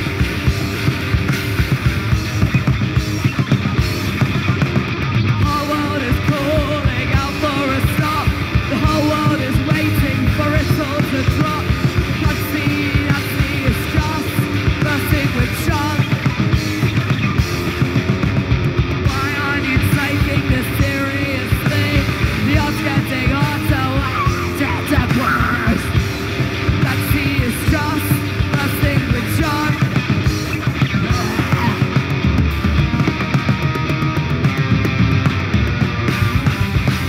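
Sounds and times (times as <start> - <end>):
bass guitar: 0.0 - 37.0
drums: 0.0 - 37.0
electric guitar: 0.0 - 37.0
person yelling and singing: 5.3 - 16.3, 19.1 - 26.0, 26.7 - 30.1, 30.8 - 32.2.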